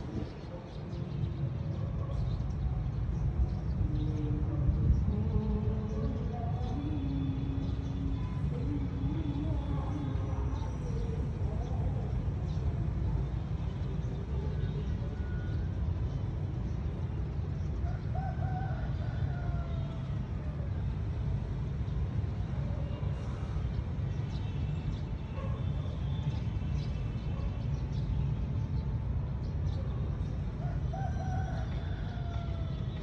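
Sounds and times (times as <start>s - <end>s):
rooster crowing: 17.8s - 20.2s, 30.6s - 33.0s.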